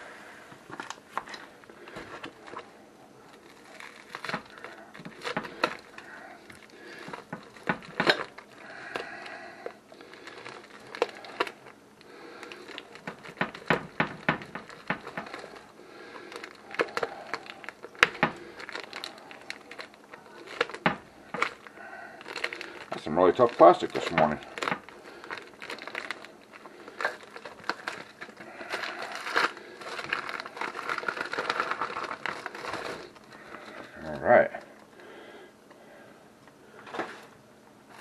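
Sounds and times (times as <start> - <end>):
knife tearing plastic packaging: 3.3 - 9.1, 10.0 - 11.7, 12.4 - 33.2.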